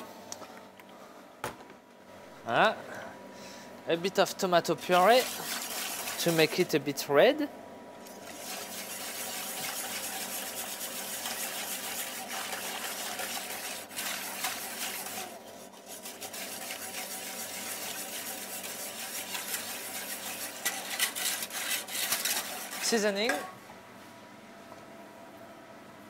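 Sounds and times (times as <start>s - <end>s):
whisk sloshing sauce in pot: 4.9s - 6.8s, 8.1s - 23.4s.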